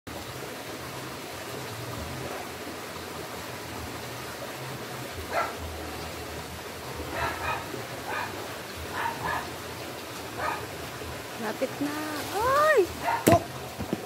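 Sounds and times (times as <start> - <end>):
dog barking: 5.3 - 5.6, 7.1 - 9.6, 10.4 - 10.7, 13.0 - 13.4.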